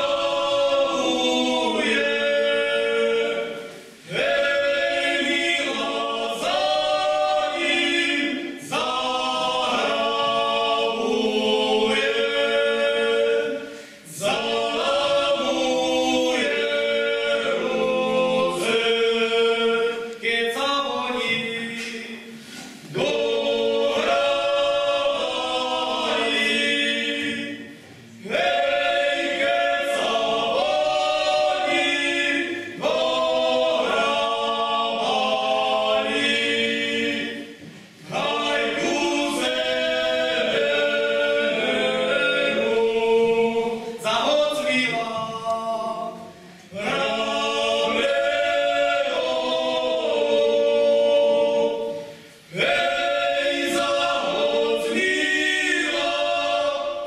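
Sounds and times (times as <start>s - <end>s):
group singing unaccompanied: 0.0s - 57.0s.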